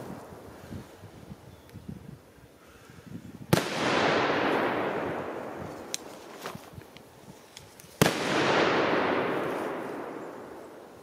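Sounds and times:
firecracker bang: 3.5 - 5.9, 8.0 - 10.8
bang echoing through woods: 3.5 - 6.7, 8.0 - 11.0.

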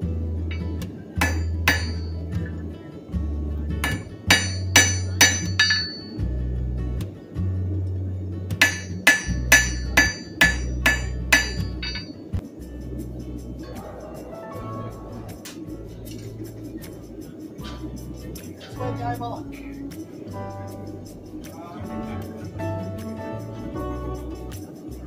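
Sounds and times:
background music with bass line: 0.0 - 25.0
hammer striking metal on anvil: 0.5 - 2.3, 3.8 - 6.2, 8.6 - 12.2.

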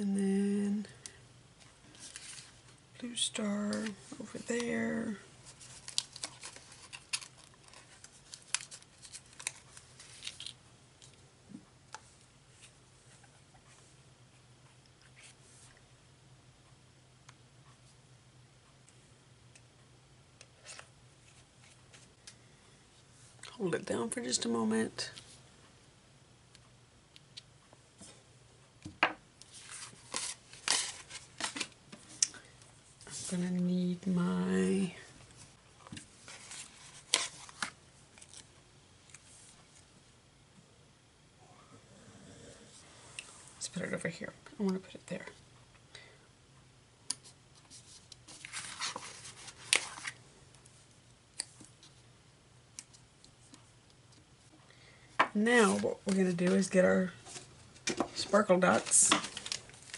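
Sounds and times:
paper sticker sheets crinkling: 5.4 - 11.1, 29.5 - 31.7, 47.7 - 50.2.

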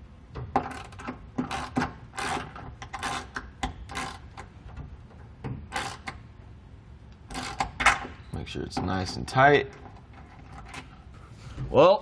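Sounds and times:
socket ratchet clicking: 0.4 - 4.5, 5.7 - 6.2, 7.2 - 8.1.

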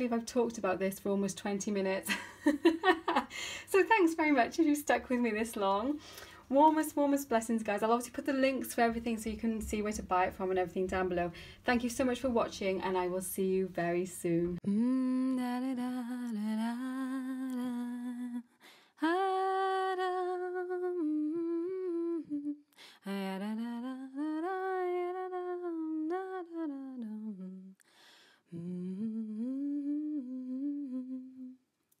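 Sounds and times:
breaths: 3.3 - 3.7, 6.0 - 6.5, 11.3 - 11.7, 18.5 - 19.0, 22.7 - 23.1, 27.8 - 28.6
woman humming: 28.5 - 31.6.

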